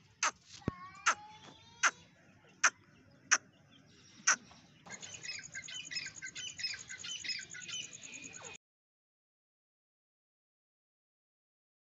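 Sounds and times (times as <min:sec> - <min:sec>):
bird chirping: 0:00.0 - 0:08.6.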